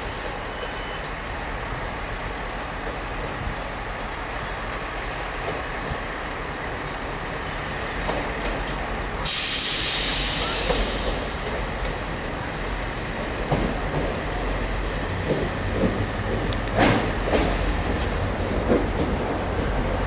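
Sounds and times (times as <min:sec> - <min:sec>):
train rumbling: 0:00.0 - 0:20.0
train brakes air hiss: 0:09.2 - 0:11.6.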